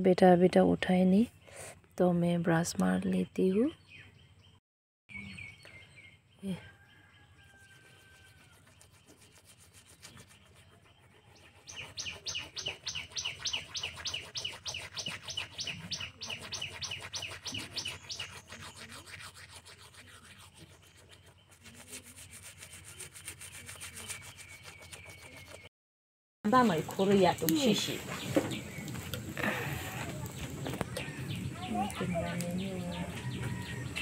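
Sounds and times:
toothbrush scrubbing teeth: 0:07.6 - 0:25.7.

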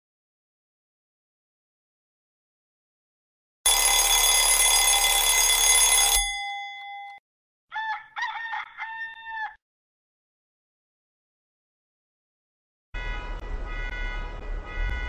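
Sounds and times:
alarm clock ringing: 0:03.7 - 0:07.2
rooster crowing: 0:07.7 - 0:09.6.

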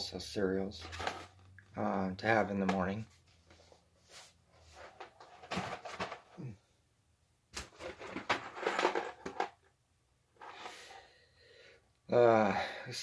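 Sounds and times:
packages rustling and knocking: 0:00.8 - 0:01.5, 0:04.6 - 0:06.6, 0:07.6 - 0:09.7.

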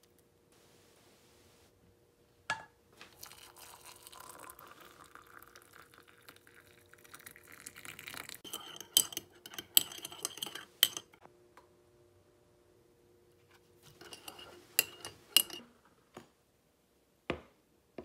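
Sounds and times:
water pouring into mug: 0:03.0 - 0:09.1
teaspoon clinking against mug: 0:08.4 - 0:11.2, 0:14.0 - 0:15.6.

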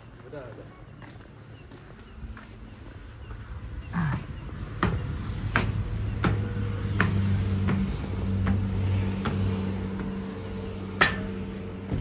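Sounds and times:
footsteps walking: 0:00.0 - 0:03.2.

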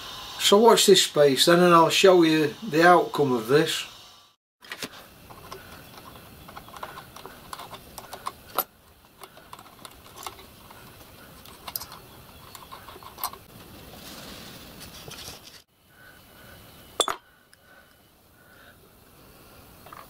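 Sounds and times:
small metallic clicks and taps: 0:04.8 - 0:13.5.

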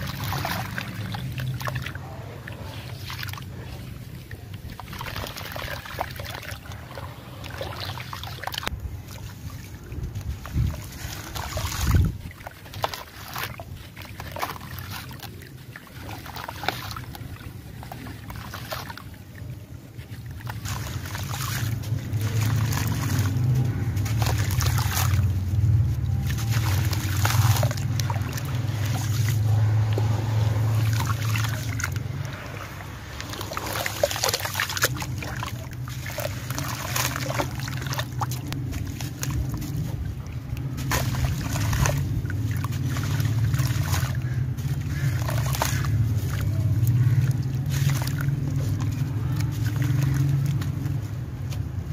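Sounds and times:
water trickling: 0:00.0 - 0:51.9
wet cement chunks crunching: 0:20.0 - 0:51.9
low rumble: 0:20.4 - 0:51.9.

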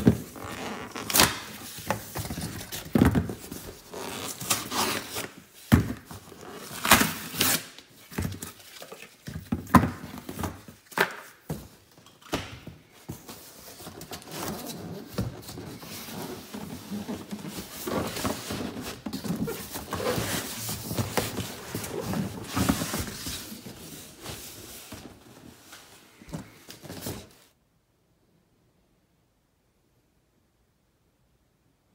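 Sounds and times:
cardboard rustling and scraping: 0:00.0 - 0:11.9, 0:12.7 - 0:27.6.

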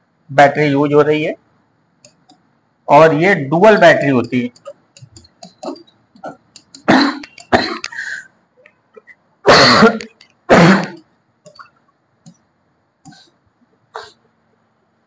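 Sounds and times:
man coughing: 0:09.5 - 0:11.0.

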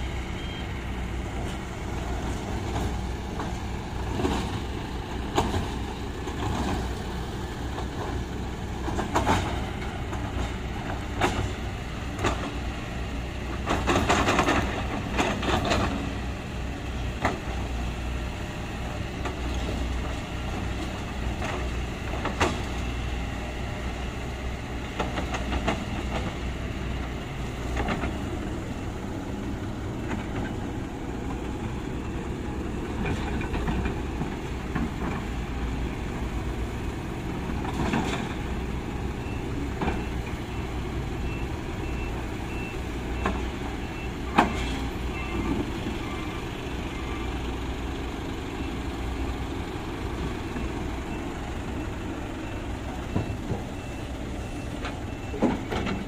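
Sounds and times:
truck reversing alarm beeping: 0:00.0 - 0:05.9, 0:20.0 - 0:35.1, 0:35.8 - 0:56.0
excavator diesel engine running: 0:00.0 - 0:56.0.

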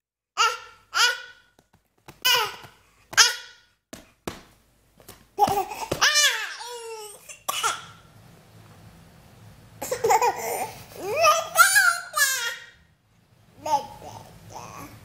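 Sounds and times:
baby squealing: 0:05.4 - 0:07.3
baby crying: 0:05.4 - 0:07.4.

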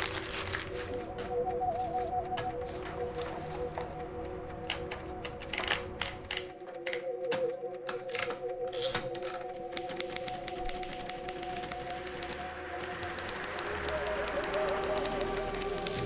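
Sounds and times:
music with wavering tones: 0:00.0 - 0:16.0
typewriter keys clacking: 0:00.0 - 0:16.0.

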